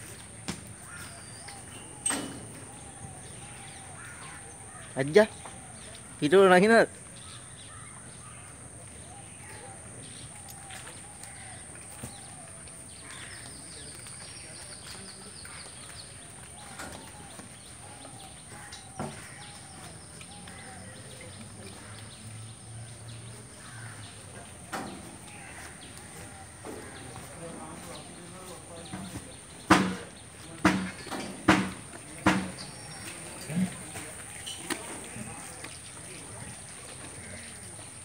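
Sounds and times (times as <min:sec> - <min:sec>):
faint bird calls: 0:00.6 - 0:06.3, 0:07.0 - 0:38.0
short sharp knocks: 0:29.7 - 0:32.7.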